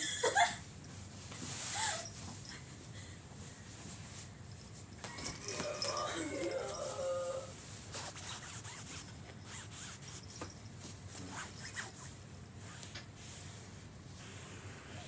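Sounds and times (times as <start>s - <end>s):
hand rubbing on a bedspread: 1.0s - 2.4s, 3.5s - 14.7s.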